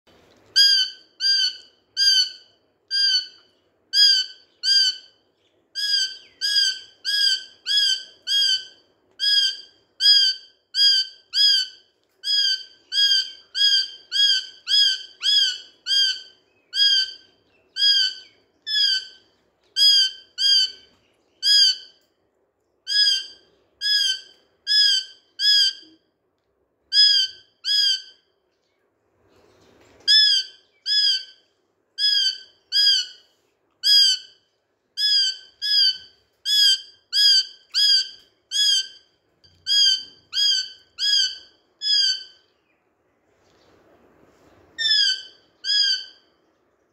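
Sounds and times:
parakeet squawking: 0.6 - 3.4, 4.0 - 5.1, 5.8 - 19.2, 19.8 - 21.9, 26.9 - 28.2, 32.0 - 33.2, 33.8 - 34.4, 35.0 - 39.0, 39.6 - 42.4, 44.8 - 46.2.

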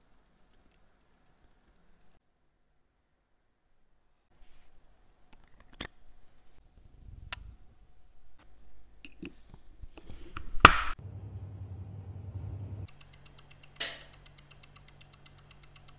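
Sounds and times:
small watch parts clicking: 0.0 - 2.2, 12.9 - 15.9.

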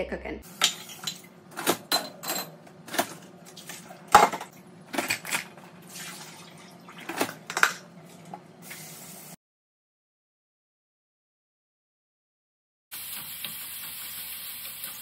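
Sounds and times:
dishes clattering in racks: 0.6 - 5.6
water hissing at sink: 13.0 - 15.0.

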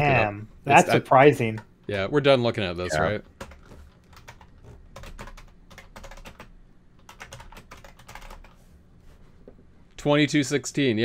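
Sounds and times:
typing on computer keyboard: 3.2 - 8.6.

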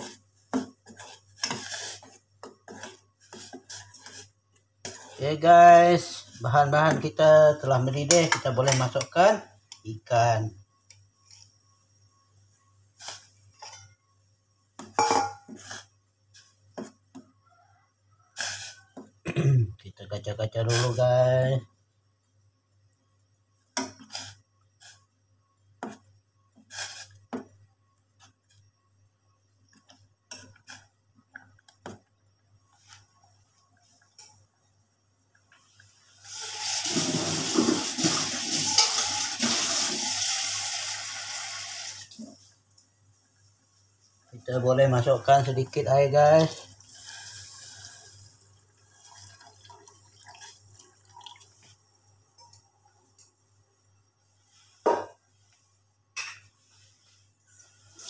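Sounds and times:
steel bowl and pot clinking: 15.0 - 15.6, 38.6 - 39.6
tap water running into container: 36.2 - 42.2, 46.4 - 51.8.

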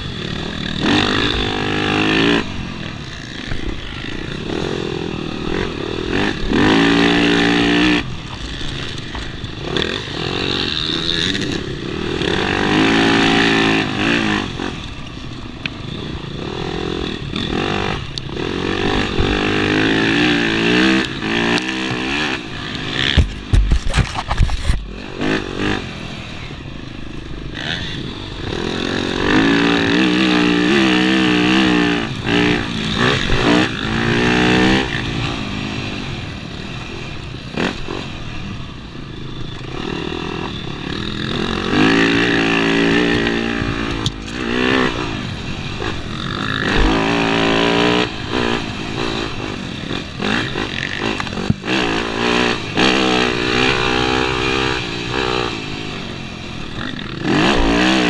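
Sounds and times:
dirt bike engine revving: 0.0 - 58.0
loud thumps and clatter: 23.1 - 24.9.

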